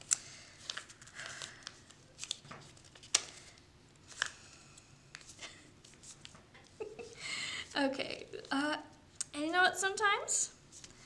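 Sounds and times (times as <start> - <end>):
paper crease crackles: 0.0 - 4.4
paper rustling and crinkling: 0.0 - 4.4.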